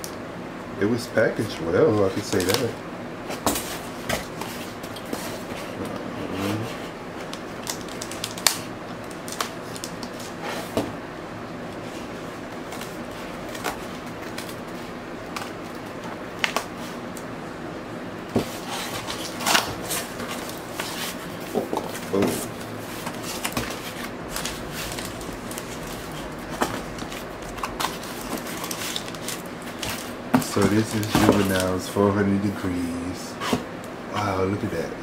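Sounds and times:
steady low hum: 0.0s - 35.0s
cardboard mailer crinkles and taps: 18.3s - 31.7s
cardboard scraping: 18.4s - 31.6s.

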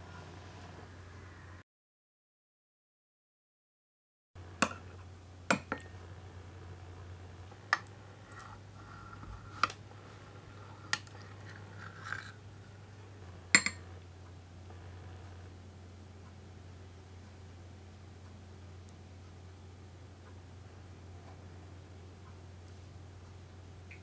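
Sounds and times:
low steady hum: 0.0s - 1.6s, 4.4s - 24.0s
metal spoon clinking on bowl: 13.6s - 13.9s.

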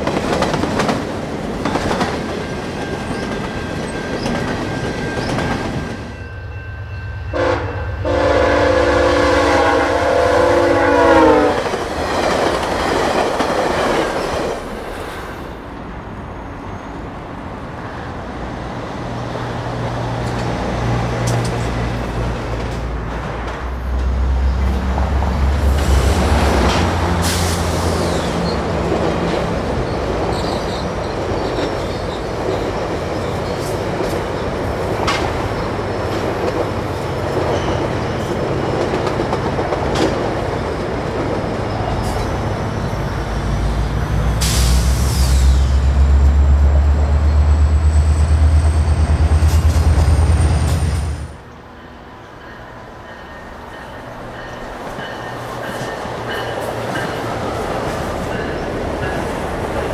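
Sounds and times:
train wheels rumbling over rails: 0.0s - 6.3s, 7.3s - 16.1s, 17.1s - 59.9s
diesel locomotive drone: 0.0s - 59.9s
wheel squeal: 30.3s - 32.3s.

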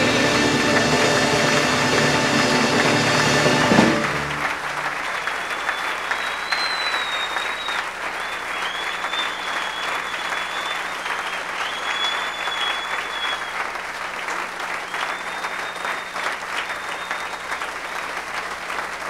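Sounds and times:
live band final chord: 0.0s - 5.0s
audience applauding: 0.0s - 19.0s
long high whistles: 5.1s - 13.8s, 14.7s - 18.1s.

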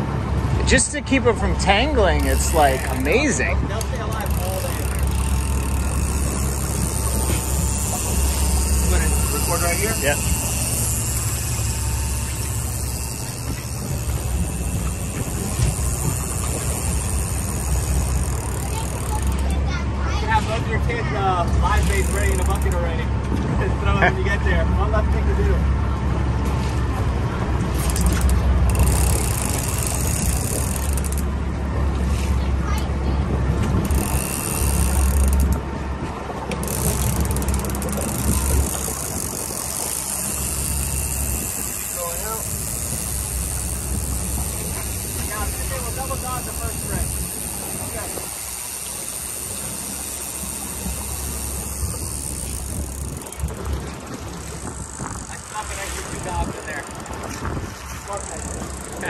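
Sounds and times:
boat engine idling: 0.0s - 59.0s
low buffets: 0.0s - 59.0s
wind on microphone: 33.2s - 45.7s, 46.4s - 59.0s.

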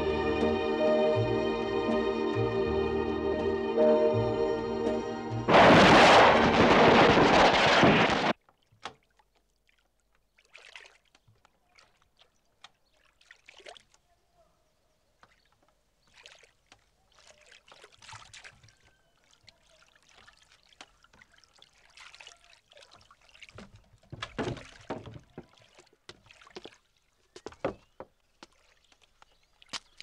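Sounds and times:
water splashing and sloshing: 4.8s - 14.1s, 15.2s - 30.0s.

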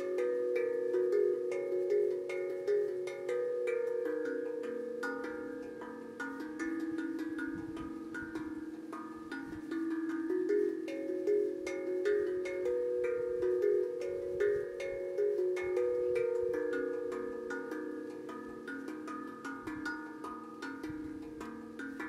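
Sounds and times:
steel tongue drum melody: 0.0s - 22.0s.

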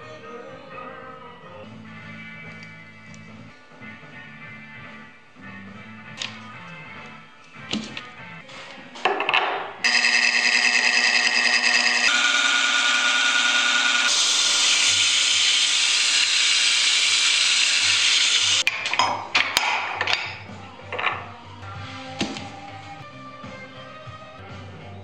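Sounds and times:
wood lathe whine: 9.9s - 18.6s.

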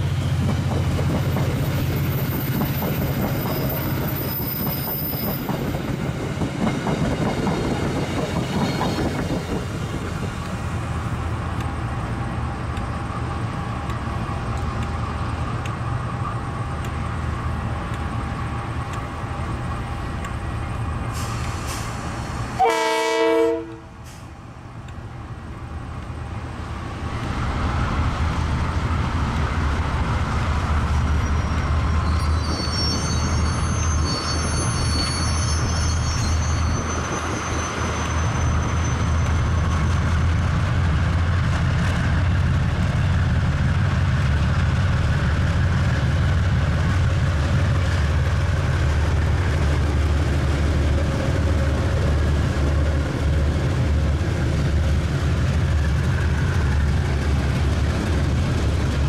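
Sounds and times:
locomotive horn blast: 22.6s - 24.0s
thin high squeal: 31.2s - 39.6s.

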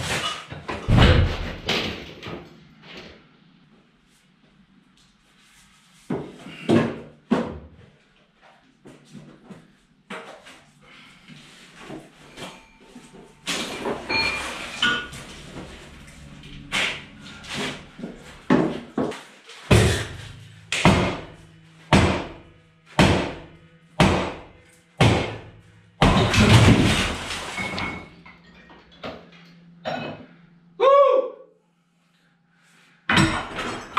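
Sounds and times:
concrete stairs crashing down: 26.0s - 28.0s.

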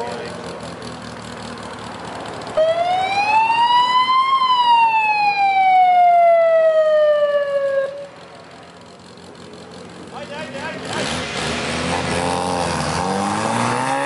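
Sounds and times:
police siren wailing: 2.6s - 8.2s.

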